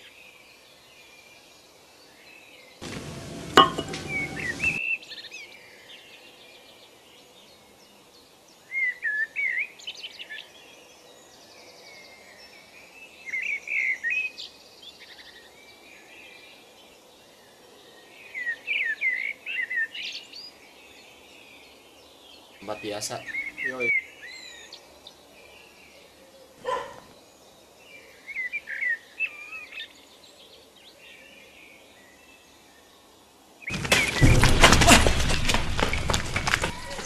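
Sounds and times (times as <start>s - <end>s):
outdoor background noise: 0.0s - 37.0s
birds chirping: 2.8s - 4.8s, 22.4s - 27.6s, 33.7s - 37.0s.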